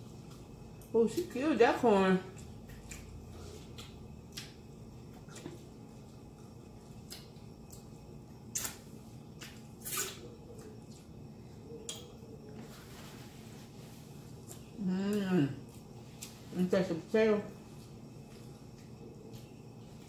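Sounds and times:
wet mouth smacks: 8.5 - 8.8.

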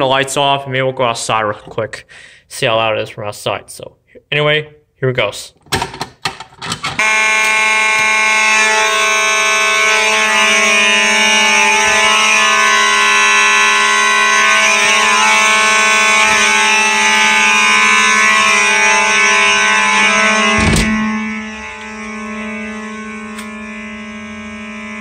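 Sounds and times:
fire alarm horns buzzing: 7.0 - 25.0.

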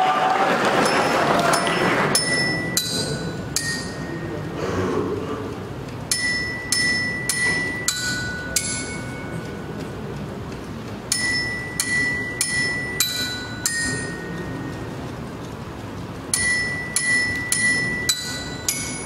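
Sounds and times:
mallet striking metal bars: 0.8 - 4.4, 6.1 - 9.7, 11.1 - 14.8, 16.3 - 19.0.

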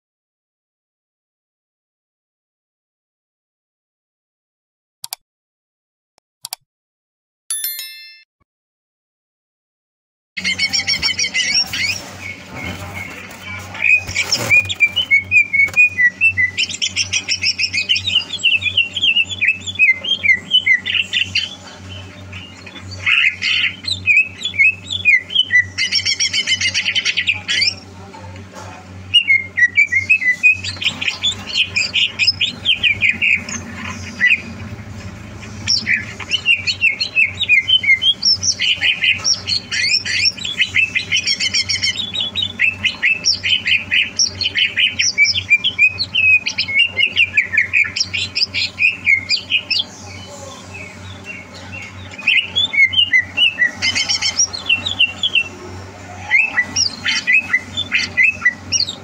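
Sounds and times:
bird singing chirps and whistles: 13.8 - 27.8, 29.1 - 34.5, 35.6 - 55.5, 56.2 - 59.0.

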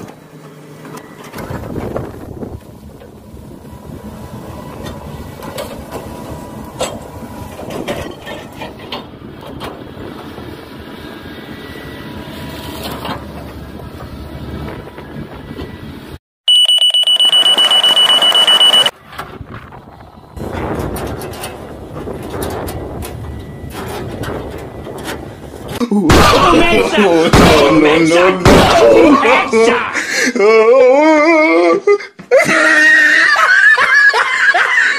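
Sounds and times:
excavator diesel engine running: 0.0 - 25.8
rapidly pulsing alarm beep: 16.5 - 18.9.

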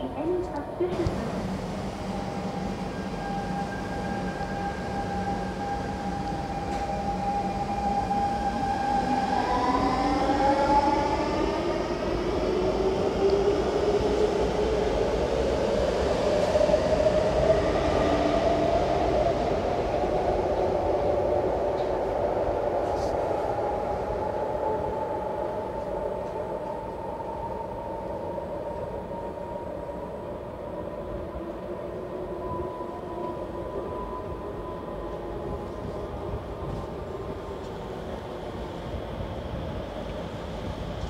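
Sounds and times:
wheels rumbling on rail: 0.0 - 41.0
train electric motor whine: 1.0 - 15.2.

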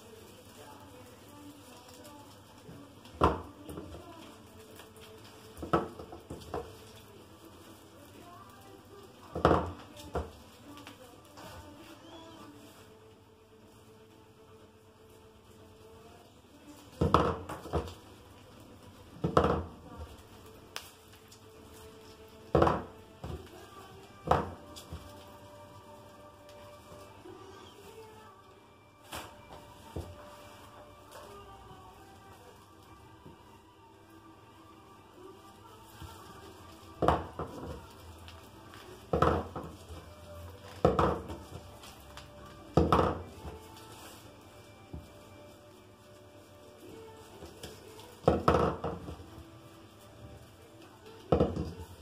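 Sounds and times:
branches rustling against table: 0.0 - 52.0
branches rustling: 29.0 - 52.0.

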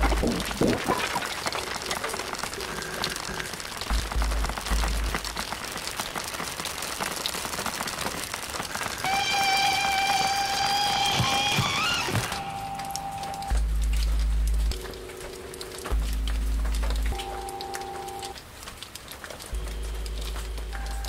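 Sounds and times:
dull low thumps: 3.9 - 5.4, 13.5 - 17.5, 19.5 - 21.0.

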